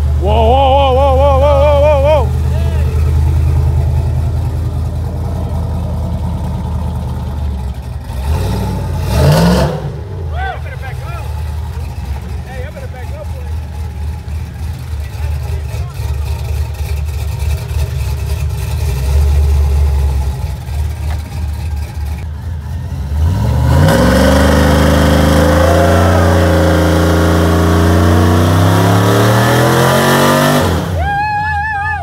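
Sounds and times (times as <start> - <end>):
car engine idling and revving: 0.0 - 32.0.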